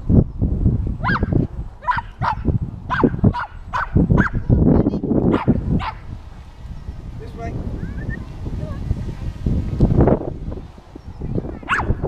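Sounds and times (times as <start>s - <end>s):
wind rumbling on microphone: 0.0s - 12.0s
dog barking: 1.0s - 4.4s, 5.3s - 6.0s, 11.6s - 12.0s.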